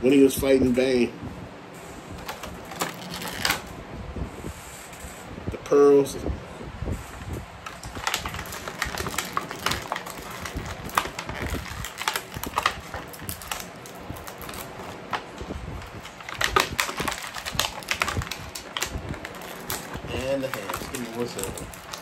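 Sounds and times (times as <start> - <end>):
plastic packaging crackling: 2.1 - 3.8, 7.6 - 22.0.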